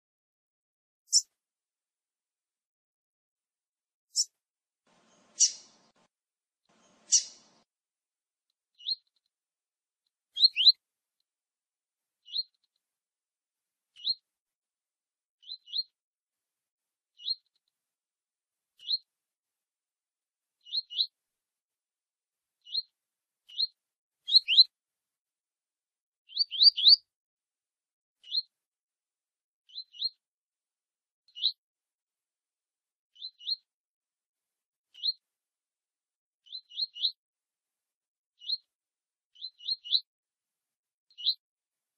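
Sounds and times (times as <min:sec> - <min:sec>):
bird chirping call: 0:01.1 - 0:01.3, 0:05.0 - 0:05.8, 0:06.7 - 0:07.5, 0:10.4 - 0:10.8, 0:24.3 - 0:24.7, 0:26.3 - 0:27.0, 0:29.7 - 0:30.2, 0:31.3 - 0:31.6, 0:33.2 - 0:33.6, 0:35.0 - 0:35.2, 0:36.5 - 0:37.2, 0:38.4 - 0:38.6, 0:39.4 - 0:40.0, 0:41.1 - 0:41.4.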